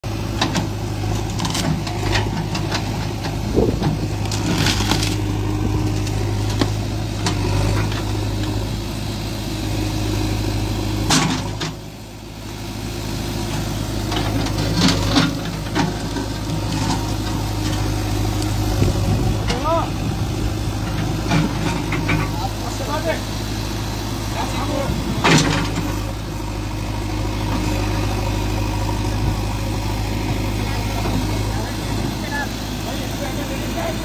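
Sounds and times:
backhoe diesel engine running: 0:00.0 - 0:34.0.

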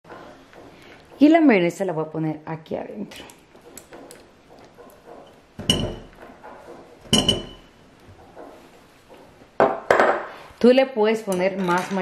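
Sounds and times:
dish clinking on glass bowl: 0:05.6 - 0:06.1, 0:07.1 - 0:07.7.

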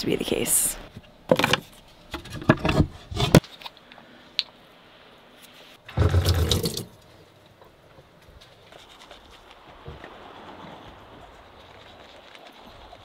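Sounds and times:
toothbrush scrubbing: 0:11.2 - 0:13.0.

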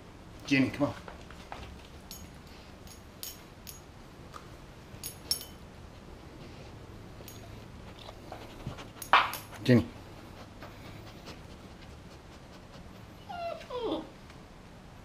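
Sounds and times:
dog collar tags jingling: 0:01.9 - 0:03.9, 0:05.0 - 0:05.7.

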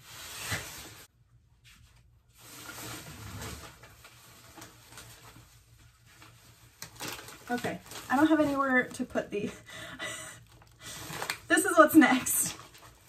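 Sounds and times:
paper bags rustling: 0:02.3 - 0:09.5, 0:10.4 - 0:13.0.

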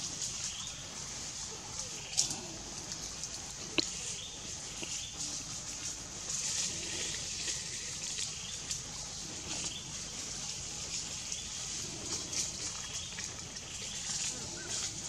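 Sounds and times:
faint irregular crackles: 0:00.0 - 0:15.0
high-pitched hiss: 0:00.0 - 0:15.0.

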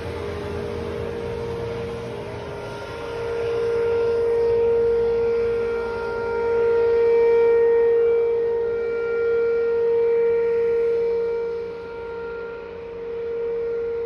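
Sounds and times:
warning siren steady tone: 0:00.0 - 0:14.0.

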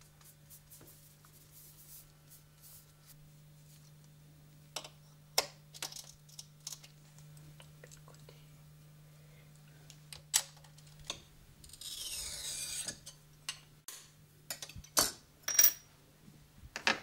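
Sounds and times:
faint low hum: 0:00.0 - 0:13.5.

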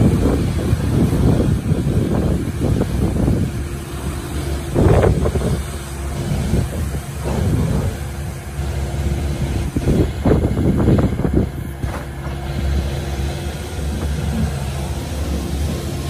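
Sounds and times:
excavator diesel engine running: 0:00.0 - 0:16.0.

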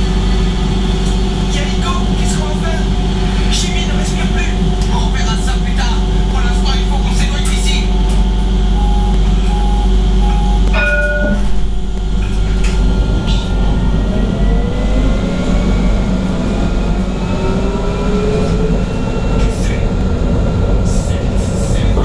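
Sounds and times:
tram low rumble: 0:00.0 - 0:22.0
short beeping signal: 0:08.7 - 0:11.6
traction motor whine rising: 0:11.4 - 0:19.5.

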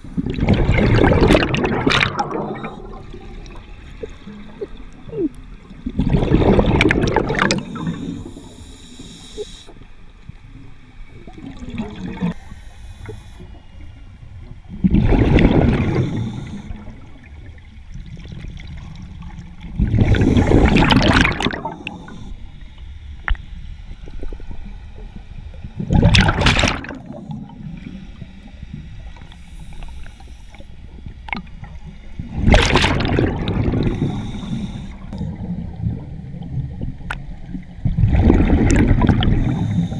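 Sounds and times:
underwater regulator bubble bursts: 0:00.2 - 0:08.3, 0:19.8 - 0:22.0, 0:32.2 - 0:34.2, 0:37.8 - 0:39.9.

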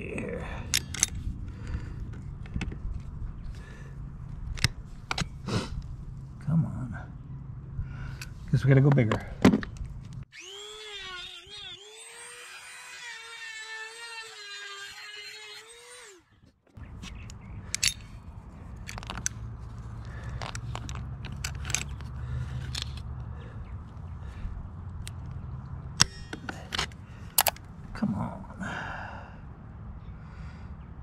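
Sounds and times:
power tool whining: 0:10.3 - 0:16.3.

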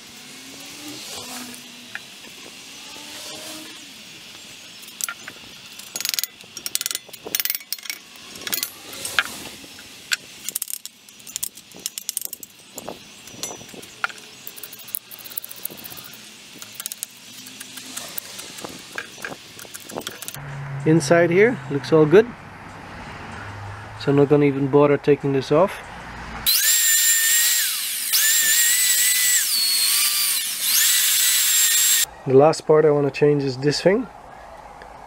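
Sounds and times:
tool clinking on metal housing: 0:05.8 - 0:08.7, 0:13.3 - 0:15.5.

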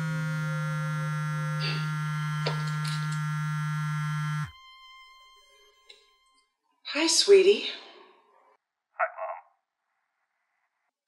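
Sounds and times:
phone buzzing: 0:00.0 - 0:04.6.

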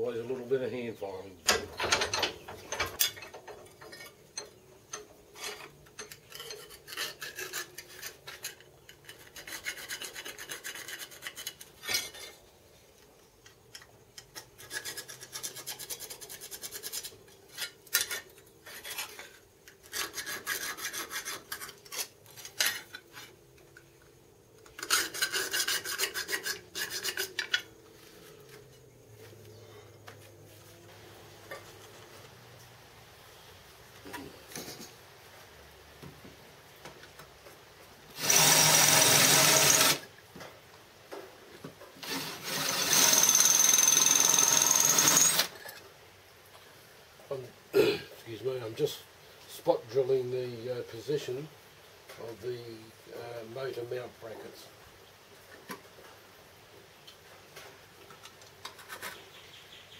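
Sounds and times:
file rasping on metal: 0:05.4 - 0:12.3, 0:14.6 - 0:19.2, 0:19.9 - 0:22.1, 0:24.8 - 0:27.6.

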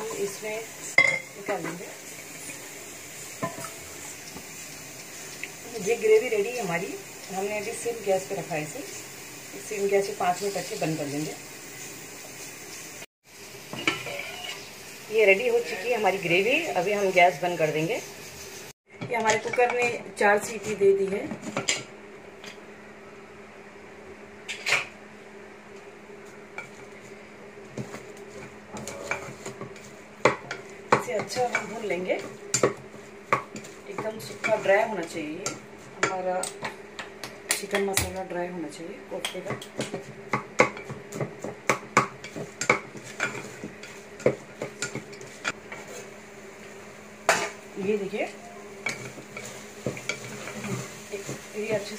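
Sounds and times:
faint sizzle: 0:00.0 - 0:51.9
spatula scraping pot: 0:48.8 - 0:51.5.

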